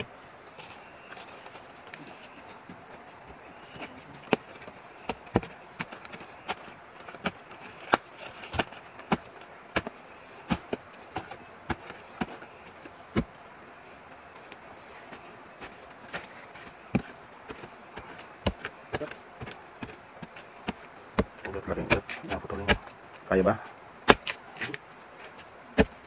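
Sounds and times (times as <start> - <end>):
shovel striking earth and roots: 3.6 - 13.4, 14.5 - 23.4, 24.0 - 26.0.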